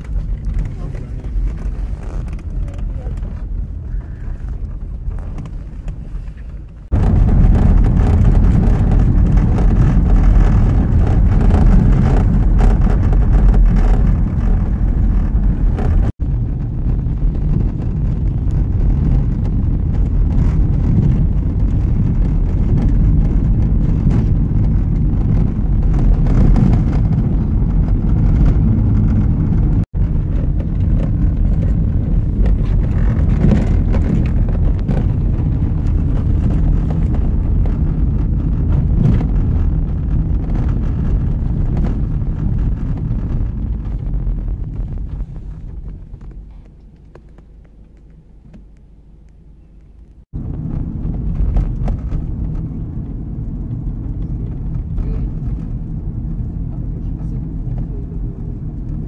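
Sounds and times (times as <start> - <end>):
road and wind noise in car: 0.0 - 59.0.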